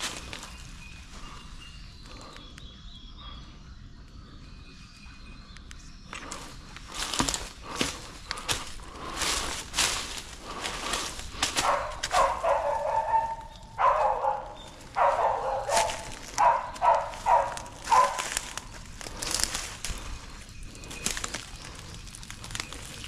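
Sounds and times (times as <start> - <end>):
footsteps crunching through dry leaves: 0.0 - 1.4, 6.3 - 23.0
dog barking: 11.6 - 18.5.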